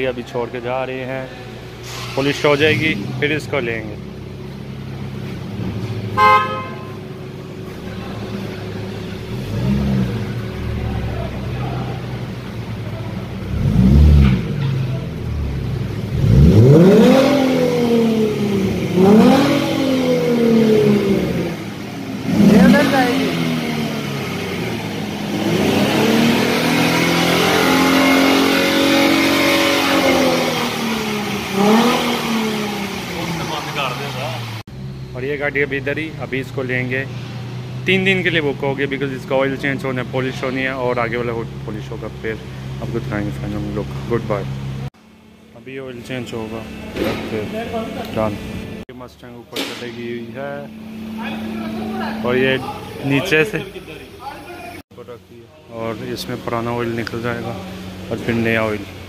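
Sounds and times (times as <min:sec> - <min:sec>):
car engine at low speed: 0:00.0 - 0:59.0
car horn toot: 0:06.1 - 0:07.2.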